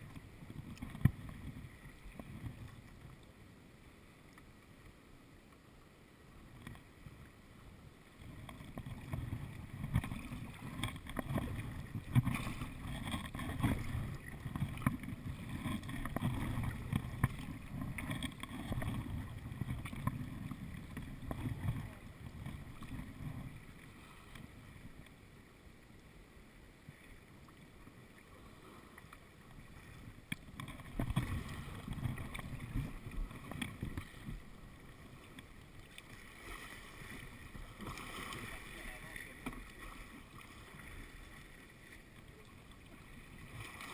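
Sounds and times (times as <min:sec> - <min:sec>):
water washing along hull: 0:00.0 - 0:05.0, 0:06.1 - 0:43.9
paddle blades splashing: 0:06.4 - 0:43.9
wind rumble on microphone: 0:08.2 - 0:23.8, 0:30.0 - 0:34.6.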